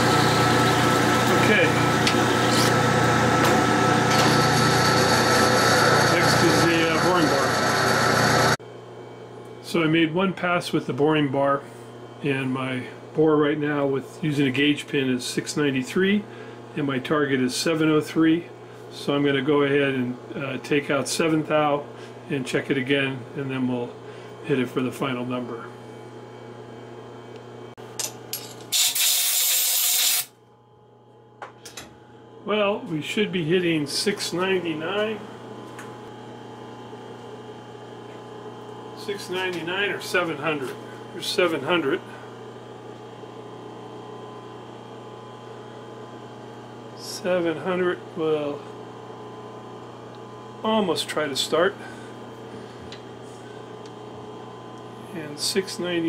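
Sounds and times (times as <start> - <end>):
metal lathe running: 0.0 - 8.6
motor and gear hum: 0.0 - 8.6
compressed air blow gun hiss: 28.8 - 30.3
steady low hum: 30.4 - 56.0.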